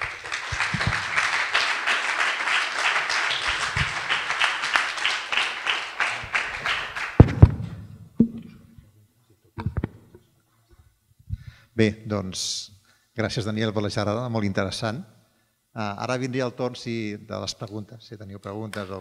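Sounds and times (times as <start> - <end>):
audience applauding: 0.0 - 7.5
loud low thumps: 7.2 - 8.5.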